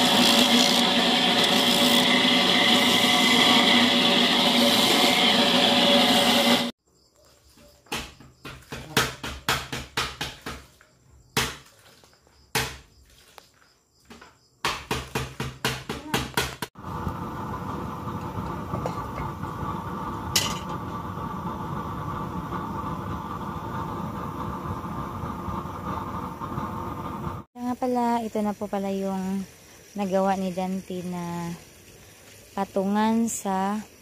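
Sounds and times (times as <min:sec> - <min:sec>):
burner stove rushing: 0:00.0 - 0:06.7, 0:16.8 - 0:27.5
dishes and pots clinking: 0:20.4 - 0:20.8.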